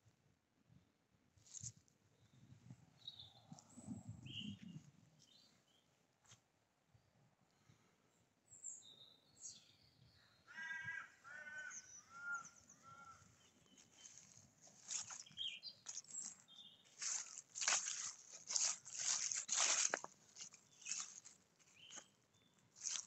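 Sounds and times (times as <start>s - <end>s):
faint small-bird chirps: 1.4s - 5.9s, 8.5s - 10.7s, 11.6s - 17.7s
crow cawing: 10.5s - 13.3s.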